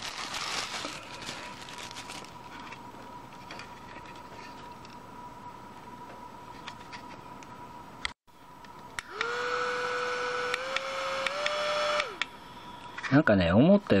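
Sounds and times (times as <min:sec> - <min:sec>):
handheld fan motor whirring: 0:09.0 - 0:12.4.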